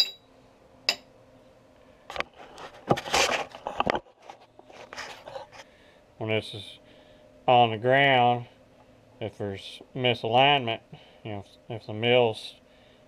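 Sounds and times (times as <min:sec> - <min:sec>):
rustling and scuffing: 0:02.2 - 0:05.6.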